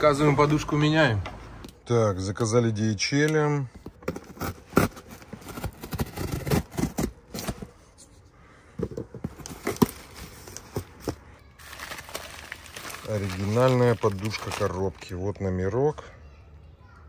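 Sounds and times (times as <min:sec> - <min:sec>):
cardboard box being opened: 0:04.0 - 0:07.8, 0:09.2 - 0:14.9
bubble wrap crinkling: 0:09.4 - 0:15.4.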